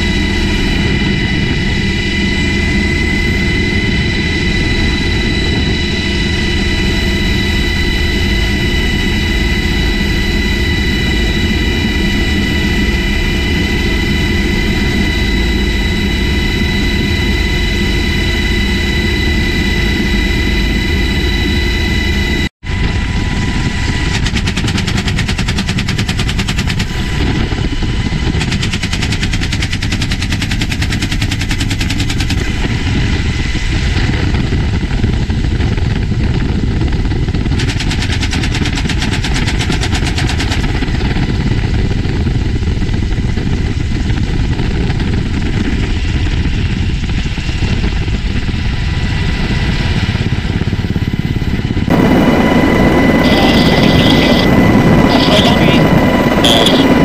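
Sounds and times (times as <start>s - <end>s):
helicopter engine and rotor: 0.0s - 57.0s
machine gun automatic fire: 24.2s - 26.9s, 28.3s - 32.4s, 37.6s - 40.7s.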